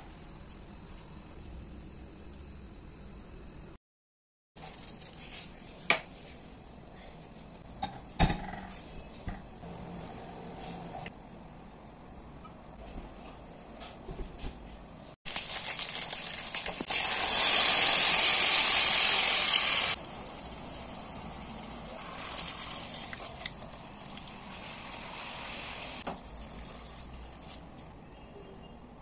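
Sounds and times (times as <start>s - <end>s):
loud sizzling hiss: 15.3s - 23.1s
peppers sizzling in hot oil: 15.3s - 27.6s
liquid pouring and simmering: 19.9s - 27.9s.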